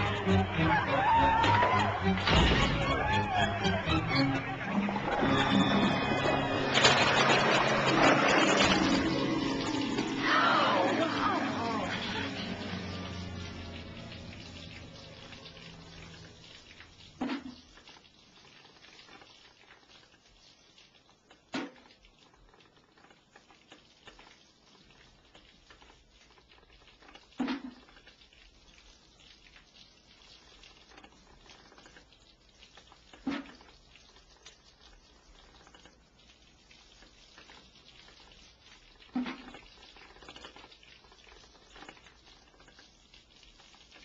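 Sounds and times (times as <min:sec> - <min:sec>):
low sound: 0:00.0 - 0:16.8
liquid dripping plinks: 0:11.6 - 0:44.0.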